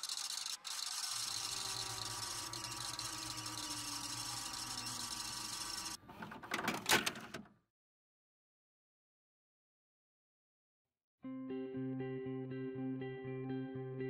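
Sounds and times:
tape rewind mechanical whir: 0.0s - 6.0s.

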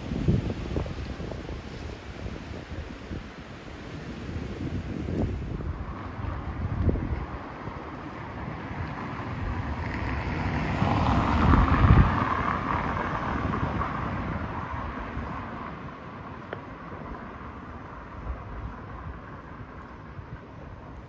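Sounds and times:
wind buffeting microphone: 0.0s - 21.0s
vehicle passing by: 5.4s - 15.6s.

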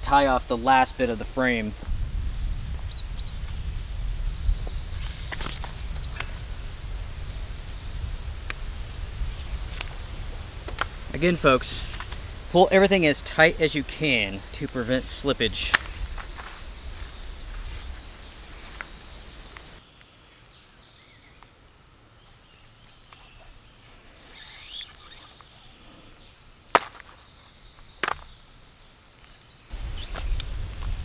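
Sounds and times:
bird chirping faintly: 15.3s - 26.4s.

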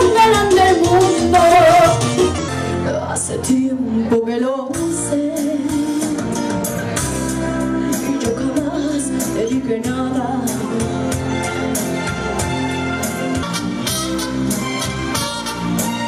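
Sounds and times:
woman singing into a microphone: 0.0s - 6.6s, 7.8s - 11.4s
latin-style music: 0.0s - 16.0s.

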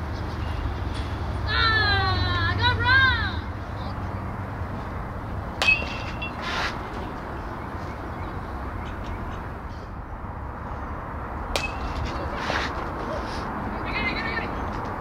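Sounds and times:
bat hitting ball with ping: 5.5s - 6.4s, 11.5s - 12.3s.

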